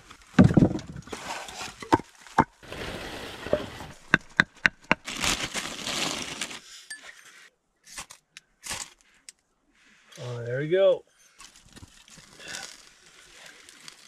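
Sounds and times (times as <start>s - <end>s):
firewood knocking together: 0.4s - 1.1s, 4.0s - 5.0s
heavy thump of logs: 0.4s - 1.1s.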